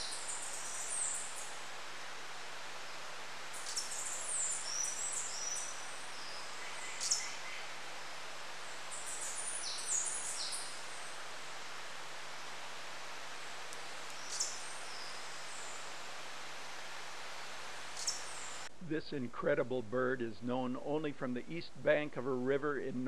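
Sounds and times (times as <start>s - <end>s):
steady background hiss: 0.0s - 23.0s
hummingbird squeaky chirps: 3.6s - 7.5s, 14.2s - 15.4s, 18.0s - 18.5s.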